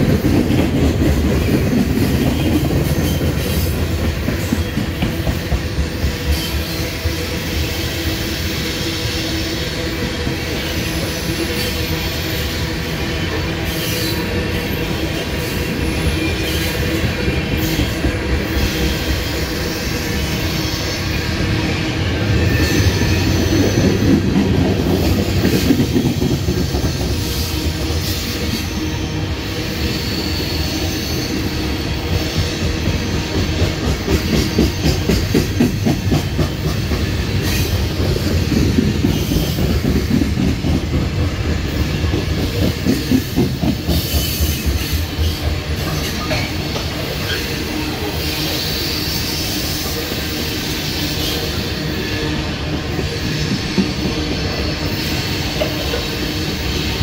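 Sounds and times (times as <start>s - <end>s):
rhythmic clatter over rail joints: 0.0s - 57.0s
train wheels rumbling on rail: 0.0s - 57.0s
faint high wheel squeal: 6.1s - 24.3s, 26.6s - 36.1s, 41.6s - 57.0s.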